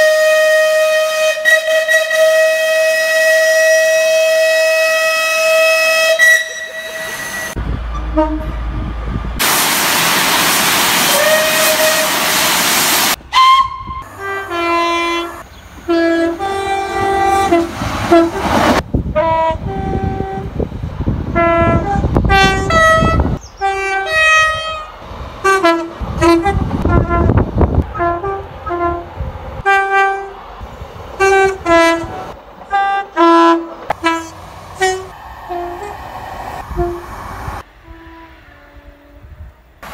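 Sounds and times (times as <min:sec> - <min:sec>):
steam locomotive whistle: 0:00.0 - 0:08.6, 0:10.9 - 0:20.5, 0:31.2 - 0:39.6
two-tone train horn blasts: 0:00.0 - 0:08.9, 0:11.1 - 0:12.5, 0:13.3 - 0:20.6, 0:21.2 - 0:30.5, 0:31.2 - 0:36.0, 0:36.6 - 0:39.8
train rumbling by: 0:00.0 - 0:39.9
loud hiss of steam: 0:09.4 - 0:13.2, 0:34.3 - 0:37.8.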